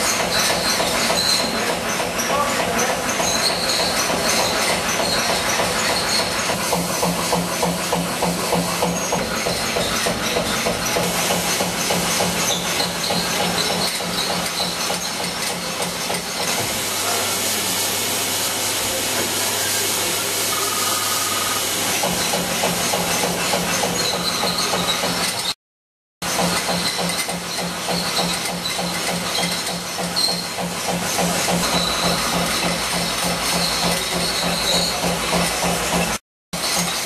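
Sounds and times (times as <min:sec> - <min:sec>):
printing machine clatter: 0:00.0 - 0:17.5, 0:18.4 - 0:25.6, 0:26.3 - 0:37.0
machine hum and hiss: 0:03.3 - 0:25.2.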